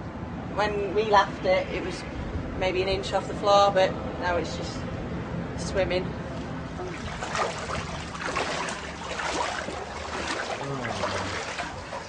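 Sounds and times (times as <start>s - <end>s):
water sloshing and splashing: 6.2s - 12.0s
boots wading through water: 6.3s - 12.0s.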